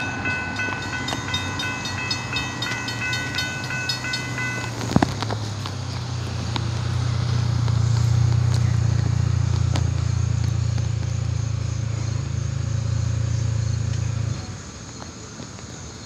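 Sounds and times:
low engine rumble: 0.0 - 15.8.

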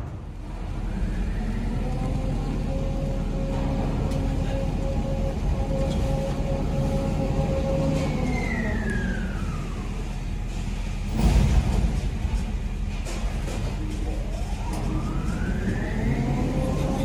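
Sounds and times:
machine drive rumble and whine: 0.0 - 17.0.

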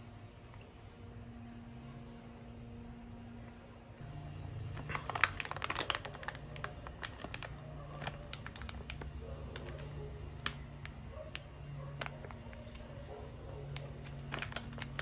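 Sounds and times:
plastic snack bag crackling: 4.4 - 13.0, 13.6 - 15.0.

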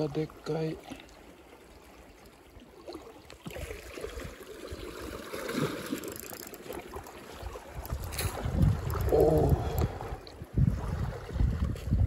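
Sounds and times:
water sloshing against rocks: 0.0 - 12.0
wind buffeting microphone: 7.4 - 12.0.

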